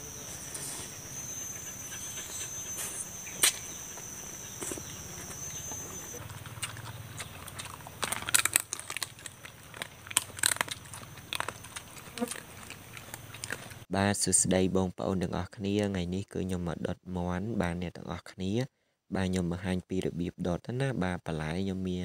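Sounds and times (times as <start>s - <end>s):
high insect buzz: 0.0s - 6.2s
chewing and crunching chicken: 0.2s - 13.9s.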